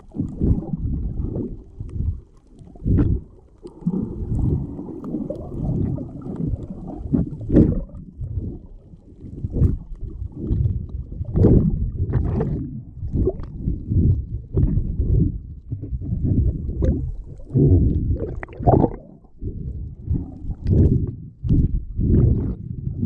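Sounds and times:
underwater rumble of moving water: 0.0 - 23.0
sharp clicks and pops: 1.8 - 8.5.

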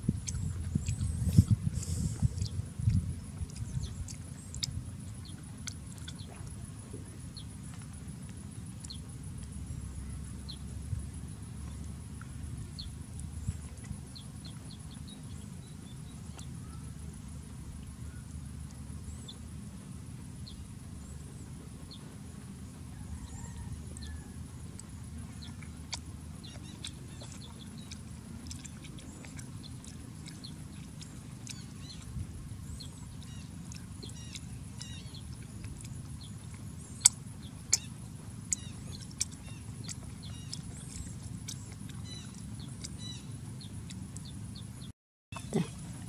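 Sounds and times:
steady low rumble: 0.0 - 44.9
faint bird chirps: 22.9 - 24.3.

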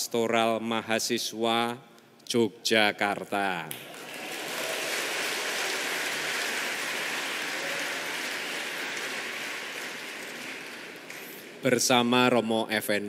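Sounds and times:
congregation applauding: 3.7 - 11.6.

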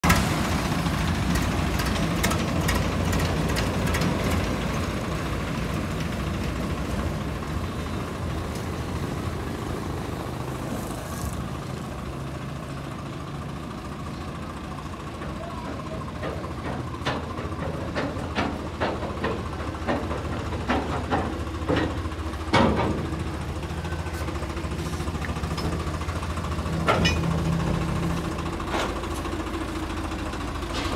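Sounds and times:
tractor diesel engine idling: 0.0 - 30.9
sharp clicks and knocks: 1.2 - 4.6, 15.2 - 23.2.

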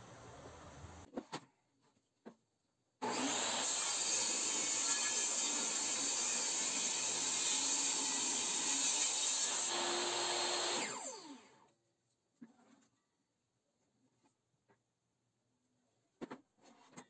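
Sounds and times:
power tool running on wood: 3.0 - 11.6.

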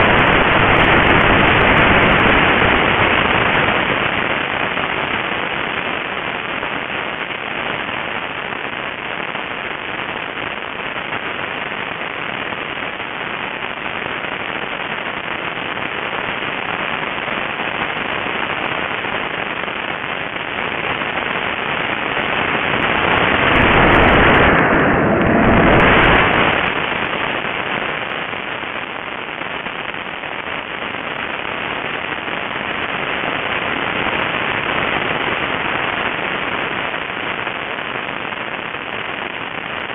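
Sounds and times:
wind rushing over camera: 21.2 - 28.8.

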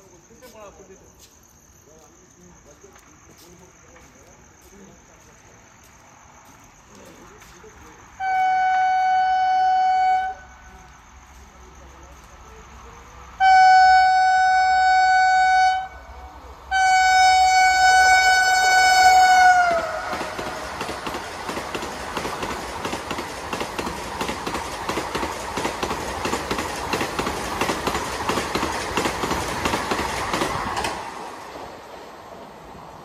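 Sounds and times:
train horn blasts: 8.2 - 10.6, 13.4 - 20.5
train wheels clattering on rails: 18.6 - 32.8.

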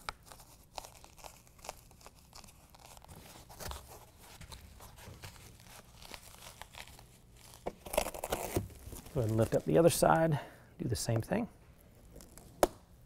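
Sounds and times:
faint scuffs and crackles: 2.1 - 10.3.

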